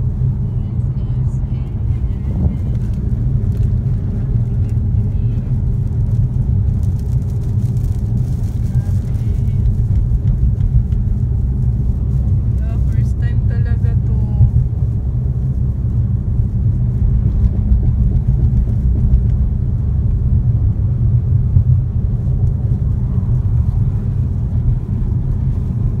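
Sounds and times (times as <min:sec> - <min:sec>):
road and wind noise inside car: 0:00.0 - 0:26.0.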